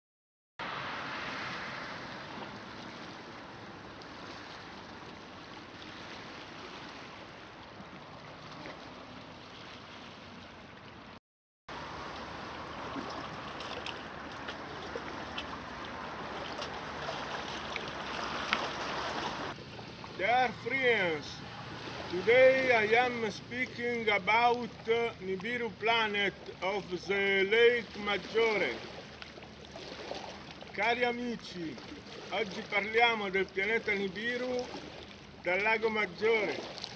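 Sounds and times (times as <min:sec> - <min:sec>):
lake waves lapping shore: 0:00.6 - 0:36.9
water splashing on rocks: 0:11.8 - 0:19.6.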